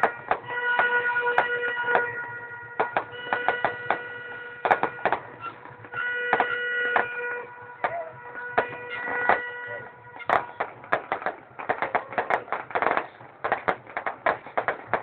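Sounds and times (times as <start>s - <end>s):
held horn-like tone: 0.0s - 10.9s
fireworks bangs and crackles: 0.0s - 15.0s.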